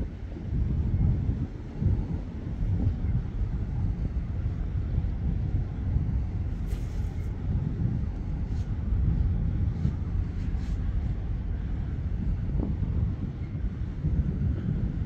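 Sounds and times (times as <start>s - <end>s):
wind buffeting microphone: 0.0s - 15.0s.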